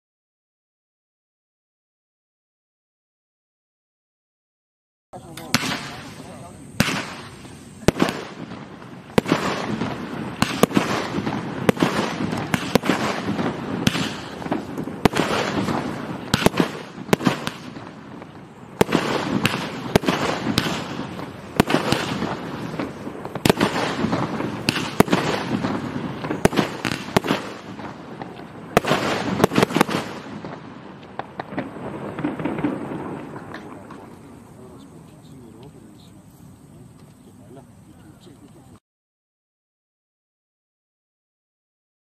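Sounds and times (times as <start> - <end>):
firework bangs: 5.2 - 38.1
continuous rushing hiss: 5.2 - 38.8.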